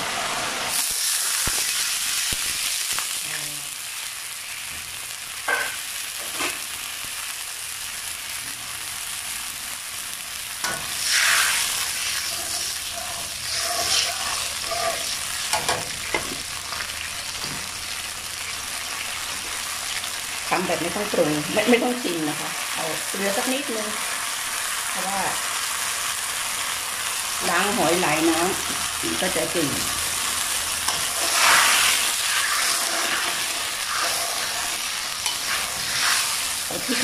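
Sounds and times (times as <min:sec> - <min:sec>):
sauce sizzling and bubbling: 0:00.0 - 0:37.0
ladle scraping wok: 0:10.6 - 0:16.3, 0:30.9 - 0:37.0.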